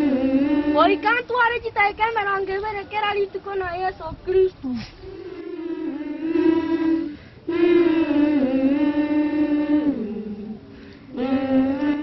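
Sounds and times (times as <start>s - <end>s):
person singing unaccompanied: 0.0s - 1.7s, 5.0s - 12.0s.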